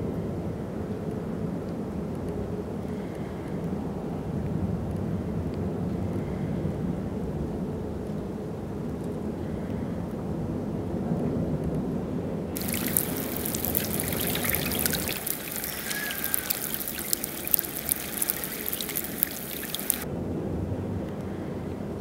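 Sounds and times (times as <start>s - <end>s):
water trickling over pebbles: 12.6s - 20.0s.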